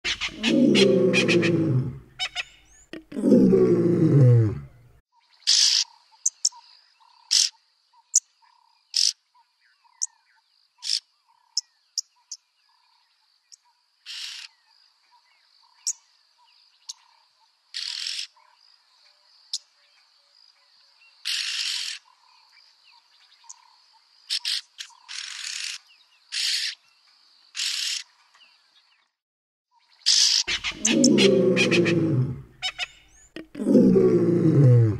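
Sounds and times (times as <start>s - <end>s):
birds calling with harsh hissing rasps: 0.1s - 2.9s, 5.3s - 12.4s, 14.0s - 18.5s, 21.0s - 28.9s, 29.9s - 34.9s.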